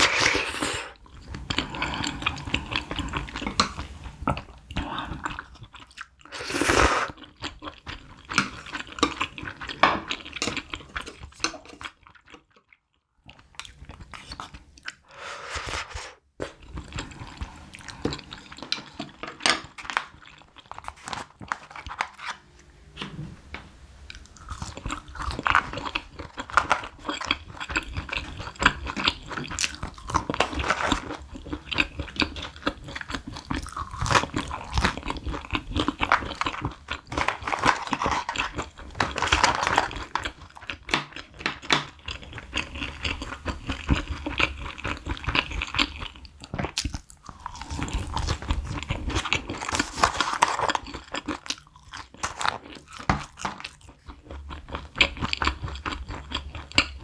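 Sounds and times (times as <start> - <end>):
slurping noodles: 0.0 - 3.4, 6.3 - 7.3, 15.0 - 16.2
wet chewing and mouth smacks: 24.1 - 57.0.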